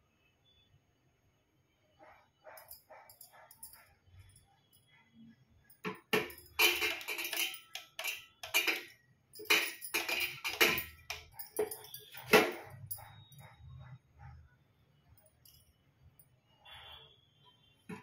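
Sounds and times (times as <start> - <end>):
bangles jangling: 2.0 - 5.0, 5.6 - 14.3, 15.2 - 16.4
metal idols knocking on copper plate: 5.8 - 13.0.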